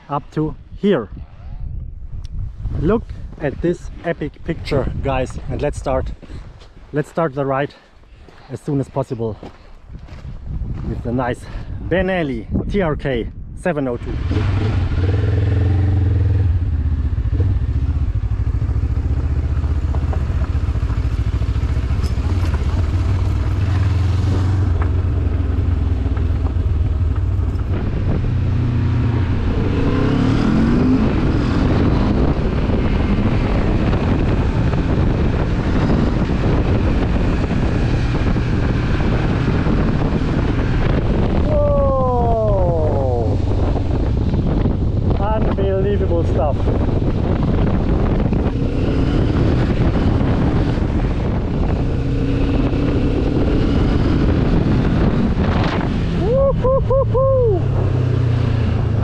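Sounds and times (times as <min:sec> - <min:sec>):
wind and road noise: 0:00.0 - 0:59.0
motorcycle engine running: 0:14.0 - 0:59.0.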